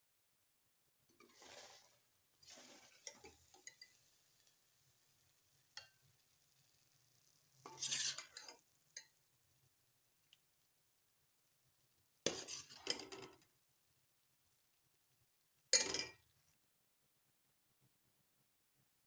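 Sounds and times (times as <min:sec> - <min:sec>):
metal ladle scraping steel pot: 0:01.2 - 0:03.9, 0:07.6 - 0:08.6, 0:12.3 - 0:13.3.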